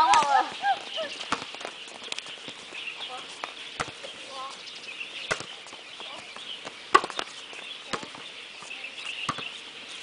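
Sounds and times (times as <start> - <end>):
volleyball hits: 1.2 - 1.7, 5.3 - 5.6, 6.9 - 7.3.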